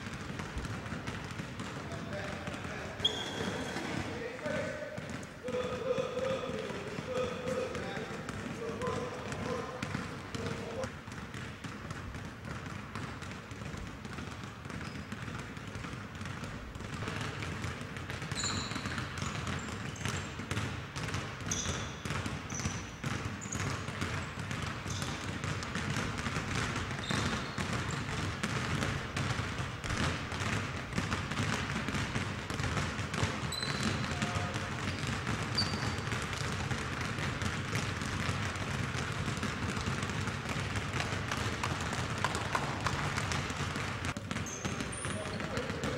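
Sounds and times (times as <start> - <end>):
basketballs bouncing on gym floor: 0.0 - 45.9
sneaker squeaks: 0.9 - 10.9, 14.1 - 15.7, 18.0 - 25.5, 26.6 - 28.2, 33.1 - 38.3, 42.2 - 45.9.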